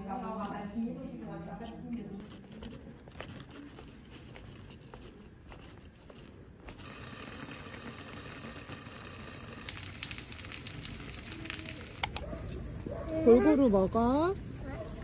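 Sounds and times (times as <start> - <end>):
pot simmering with sizzling hiss: 3.6 - 15.0.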